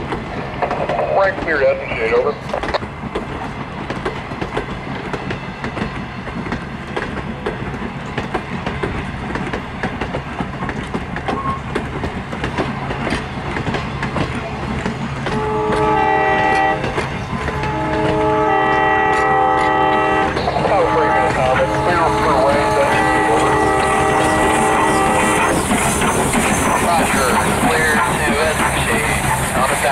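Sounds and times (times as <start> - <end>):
low train rumble: 0.0 - 29.9
train wheels clicking over rail joints: 0.0 - 29.9
train horn chord: 15.3 - 16.8, 17.5 - 25.3.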